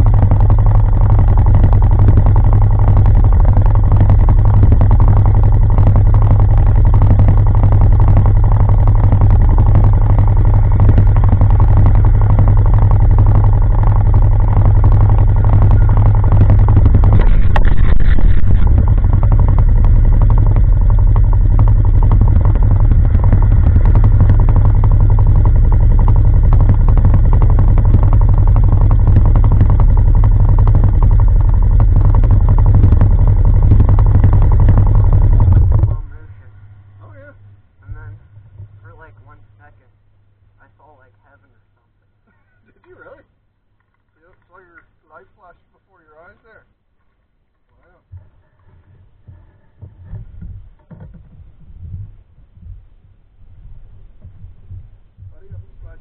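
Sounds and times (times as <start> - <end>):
atv engine idling: 0.0 - 40.6, 48.2 - 56.0.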